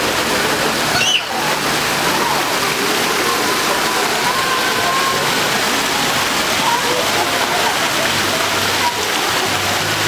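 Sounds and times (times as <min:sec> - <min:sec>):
fountain water splashing: 0:00.0 - 0:10.0
children's voices: 0:00.8 - 0:09.8
high cry: 0:00.9 - 0:01.4.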